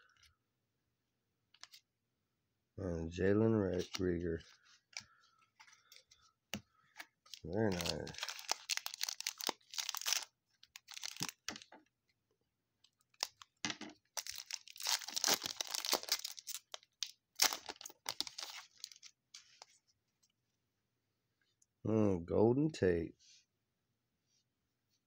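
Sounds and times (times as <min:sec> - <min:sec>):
wrapper tearing and crinkling: 0:07.3 - 0:11.7, 0:14.1 - 0:19.1.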